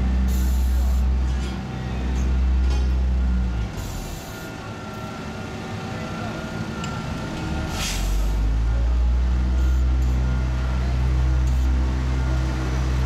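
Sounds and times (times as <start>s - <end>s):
diesel engine drone: 0.0s - 13.0s.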